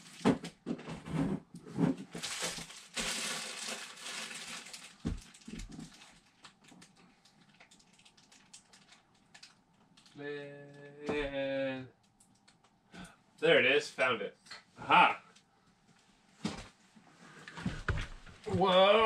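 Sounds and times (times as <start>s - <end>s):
rummaging through things: 0.0s - 9.0s.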